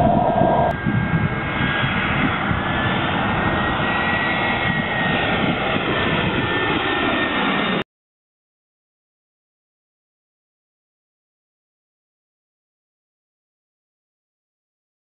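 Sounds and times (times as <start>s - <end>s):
jet airliner passing overhead: 0.0s - 7.8s.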